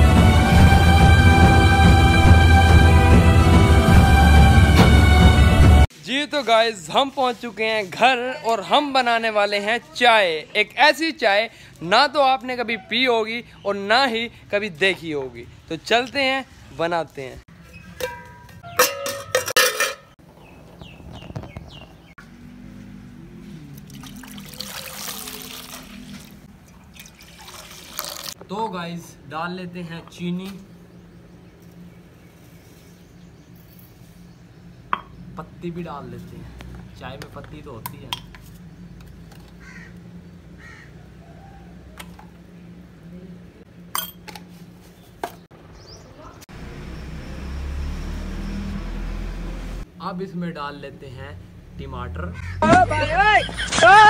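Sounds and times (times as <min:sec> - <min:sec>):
bird chirps: 0:17.6 - 0:18.9, 0:20.3 - 0:22.2
metal spoon clinking on glass jar: 0:18.0 - 0:20.1, 0:44.0 - 0:44.3
milk pouring into metal pot: 0:23.8 - 0:28.4
crow cawing: 0:39.6 - 0:41.7, 0:52.3 - 0:52.8.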